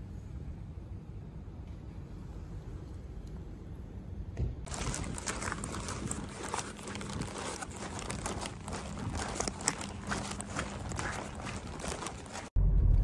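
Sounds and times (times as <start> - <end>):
paper and plastic bags crinkling: 4.7 - 12.6.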